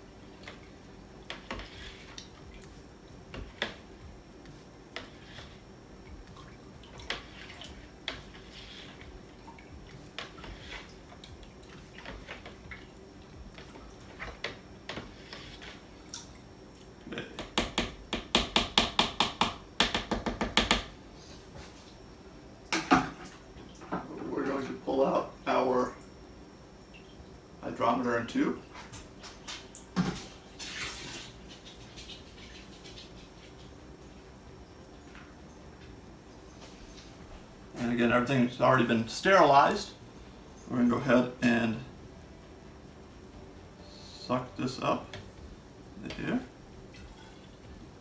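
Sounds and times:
rapid stirring strokes: 0.0 - 16.0, 30.6 - 34.0.

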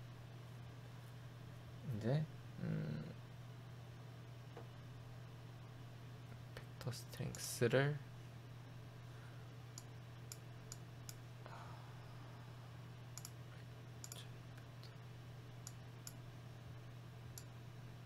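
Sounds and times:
steady low hum: 0.0 - 18.0
computer mouse clicking: 13.2 - 13.4, 14.0 - 14.2.

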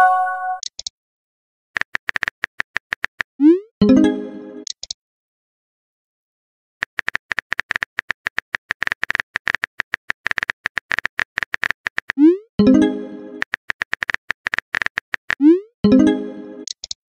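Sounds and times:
phone keyboard typing clicks: 1.8 - 3.3, 4.6 - 5.0, 6.8 - 12.2, 13.4 - 15.4, 16.6 - 17.0.

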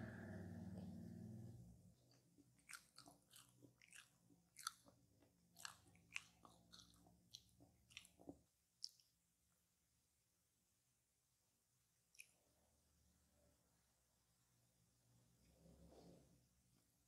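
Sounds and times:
low hum: 0.0 - 2.0
chewing with wet mouth clicks: 2.1 - 9.2, 12.1 - 12.4.

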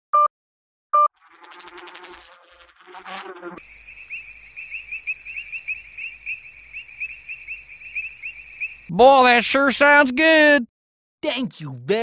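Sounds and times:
bee buzzing: 1.2 - 4.2
crickets chirping: 1.3 - 9.0.

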